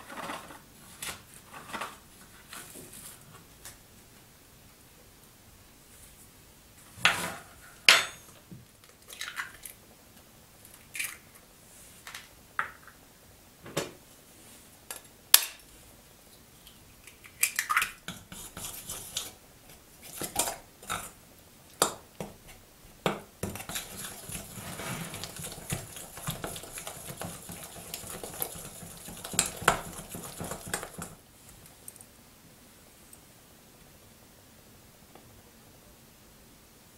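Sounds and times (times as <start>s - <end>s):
fork whisking in glass bowl: 18.1s - 19.4s, 23.4s - 31.2s.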